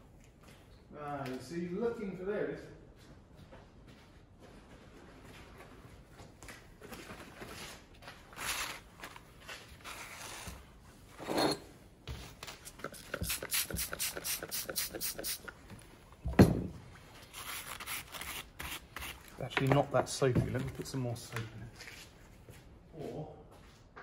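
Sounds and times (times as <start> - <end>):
spray bottle pumping: 12.6 - 15.6.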